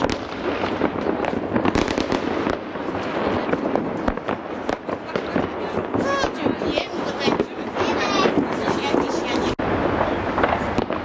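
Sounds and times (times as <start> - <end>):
sharp firecracker cracks: 0.0 - 6.6, 10.0 - 11.0
fireworks crackling: 0.0 - 11.0.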